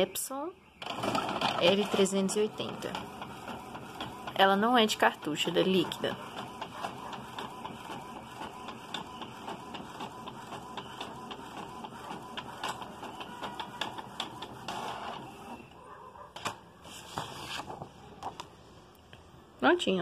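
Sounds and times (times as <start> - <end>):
inkjet printer clicking: 0.8 - 15.5.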